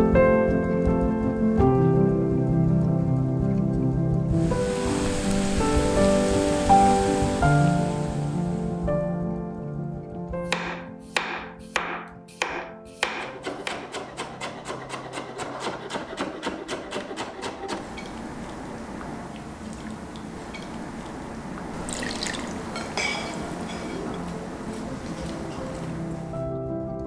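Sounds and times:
water rushing: 4.3 - 8.9, 17.8 - 26.4
knife chopping on wooden board: 10.4 - 17.8.

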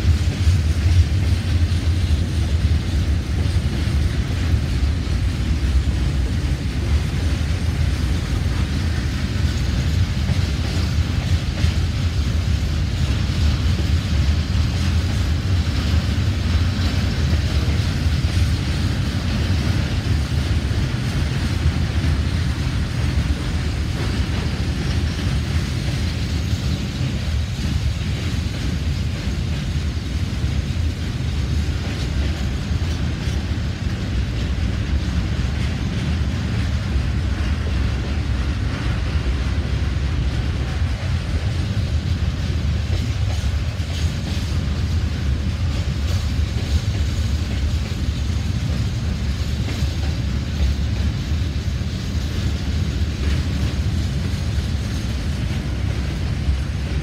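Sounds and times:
train wheel and rail rumble: 0.0 - 57.0.

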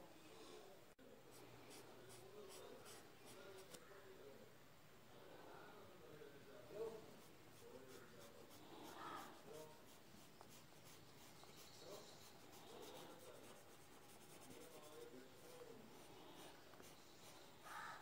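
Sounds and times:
cotton bud rubbing on paper: 7.1 - 17.9.

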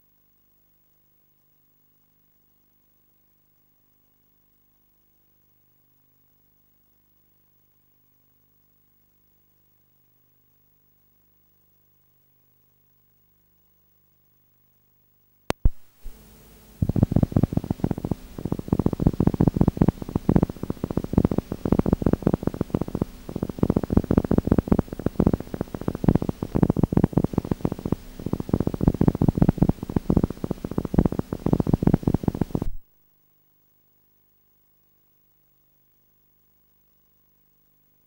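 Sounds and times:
sharp click: 15.5 - 15.8
rough mechanical rumble: 16.8 - 32.7.

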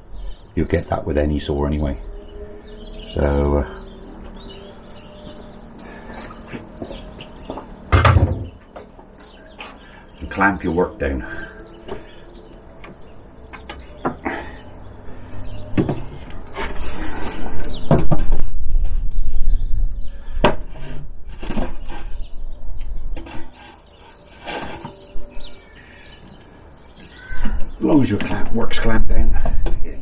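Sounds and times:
wooden knocks and clatter: 6.6 - 9.7, 15.6 - 19.0.

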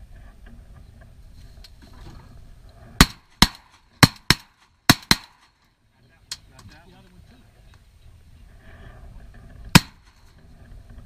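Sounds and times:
shotgun blasts: 3.0 - 5.6, 9.7 - 10.2.

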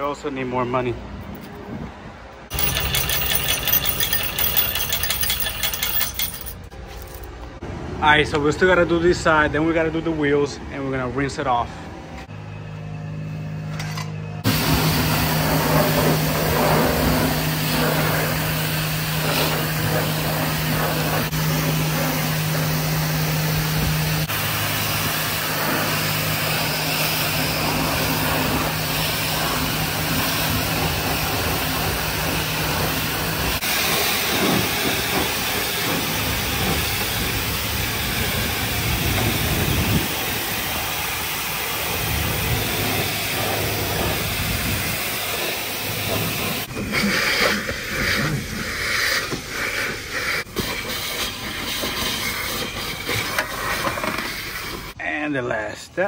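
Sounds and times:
pressure washer spray hissing: 14.5 - 55.0.

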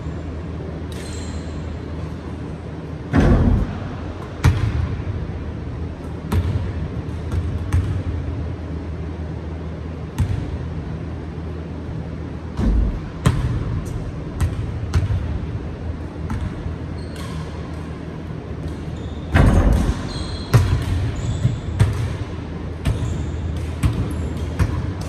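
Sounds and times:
steady low hum: 0.0 - 25.0
basketball hitting the hoop: 3.1 - 5.0, 6.2 - 8.1, 12.6 - 15.4, 19.3 - 25.0
basketball bouncing on hardwood floor: 19.3 - 22.2.

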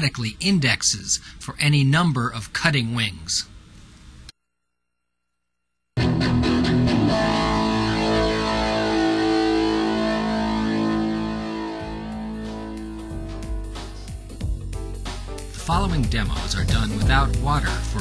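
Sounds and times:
background music with held chords: 6.0 - 18.0.

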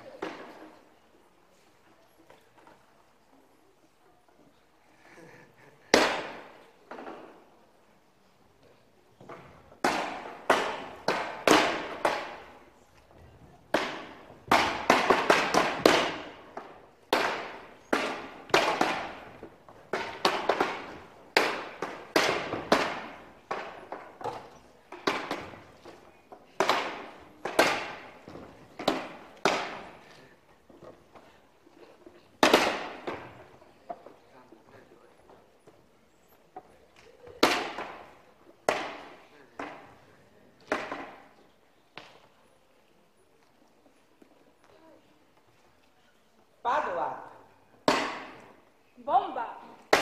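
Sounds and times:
sharp knocks echoing in hall: 5.6 - 7.4, 9.2 - 12.7, 13.6 - 30.2, 32.4 - 34.0, 37.3 - 41.4, 47.8 - 48.7, 49.7 - 50.0.

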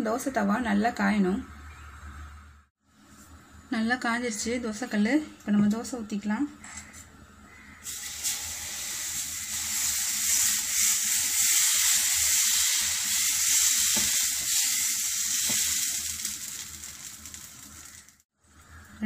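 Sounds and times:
batter sizzling on hot griddle: 7.8 - 18.3.

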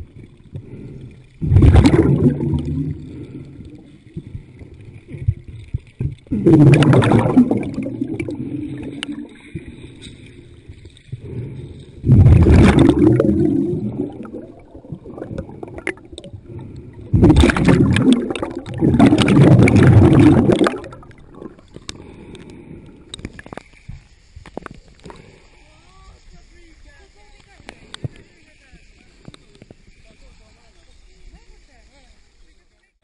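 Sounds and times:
muffled underwater bubbling: 0.0 - 23.7
water rushing surges: 1.4 - 4.0, 6.3 - 9.8, 12.0 - 21.7.

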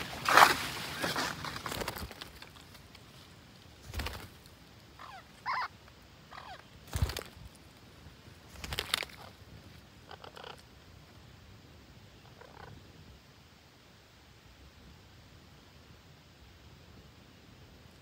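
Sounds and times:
wing flaps: 0.0 - 2.8, 3.8 - 4.5, 6.8 - 7.6, 8.5 - 9.4
parakeet calls: 5.0 - 6.7, 10.0 - 10.6.

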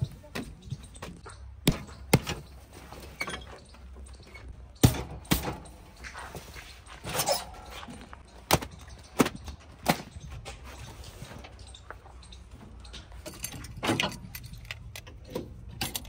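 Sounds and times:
sharp knocks and clunks: 0.0 - 6.2, 8.2 - 10.7.

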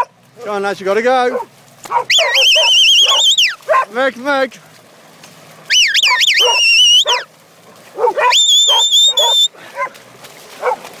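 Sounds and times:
low animal calls: 1.9 - 3.6, 5.7 - 7.3, 8.2 - 9.5
high-pitched shepherd's whistles: 2.1 - 3.6, 5.7 - 7.3, 8.2 - 9.5.

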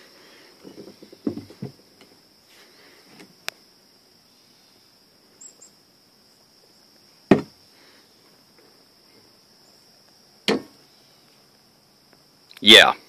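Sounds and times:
high insect trill: 0.0 - 13.0
sharp knocks: 7.3 - 7.5, 10.5 - 10.7.

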